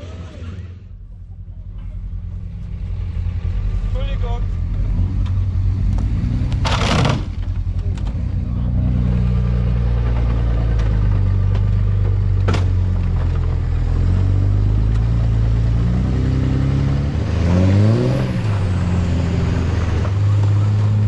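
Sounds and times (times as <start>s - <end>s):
pickup truck engine running: 0.0s - 16.1s.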